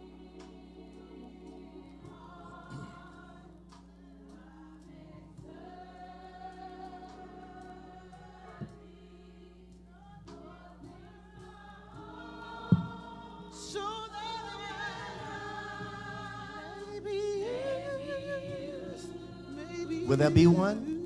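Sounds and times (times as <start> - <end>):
choir singing a hymn: 0.0 - 21.0
vibrato voice singing: 12.1 - 21.0.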